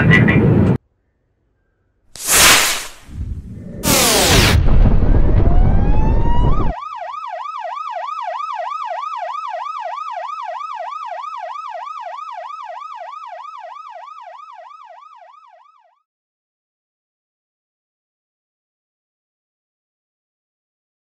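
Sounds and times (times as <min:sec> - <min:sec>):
explosion rumble: 0:02.2 - 0:06.7
yelp siren wailing: 0:05.2 - 0:16.0.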